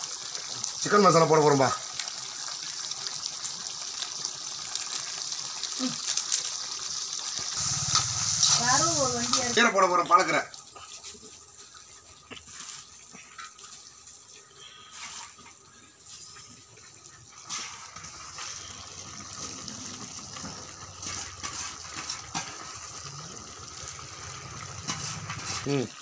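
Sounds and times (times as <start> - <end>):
curry hissing and bubbling: 0.0 - 26.0.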